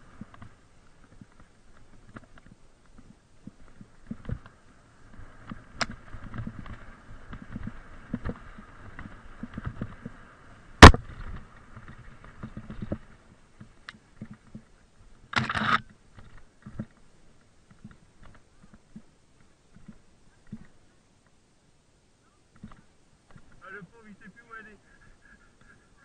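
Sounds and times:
mountain bike rattling and knocking: 0.2s - 10.2s, 10.8s - 14.7s
small clicks: 15.3s - 21.4s.

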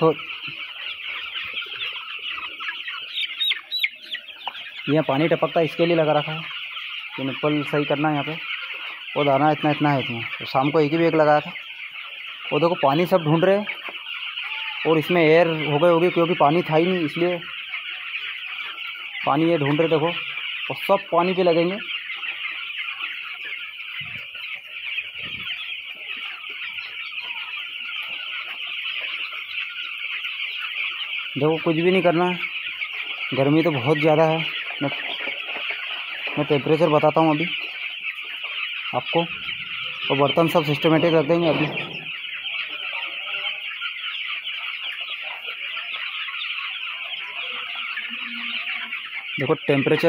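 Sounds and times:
chicks peeping: 0.0s - 50.0s.

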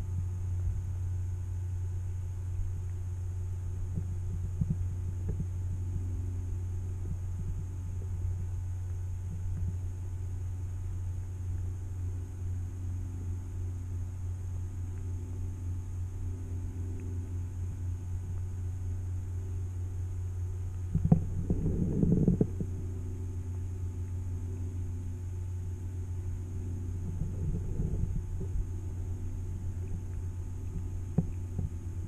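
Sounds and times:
muffled underwater hum: 0.0s - 32.0s
underwater rumbling and knocks: 3.8s - 5.8s, 7.0s - 8.3s, 9.2s - 9.8s, 20.8s - 23.0s, 26.8s - 32.0s.

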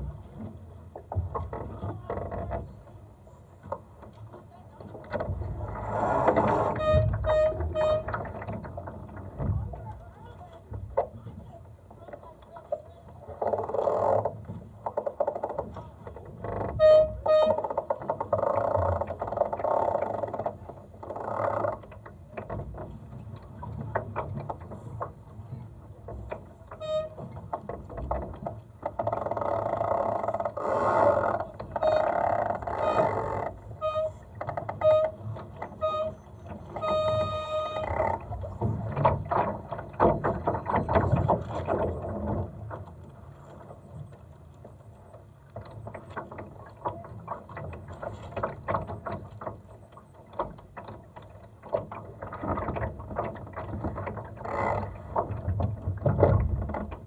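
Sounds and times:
water lapping against hull: 0.0s - 57.0s
short high squeaks: 5.9s - 8.2s, 16.8s - 17.7s, 26.8s - 27.2s, 30.6s - 38.2s.

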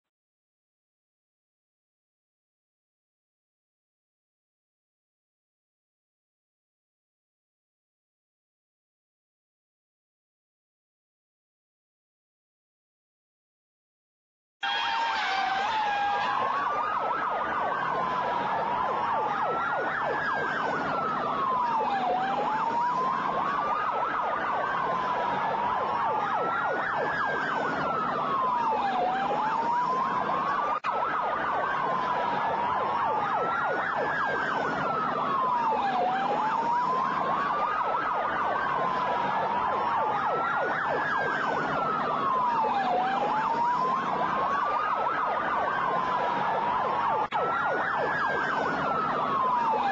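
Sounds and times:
emergency sirens wailing: 14.6s - 49.9s.

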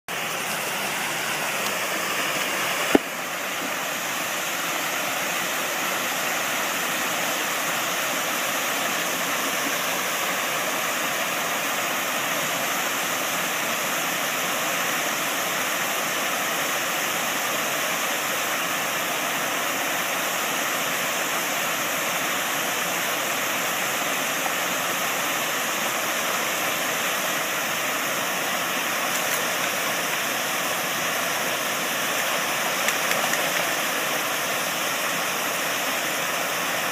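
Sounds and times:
waterfall rushing over a weir: 0.1s - 36.9s.

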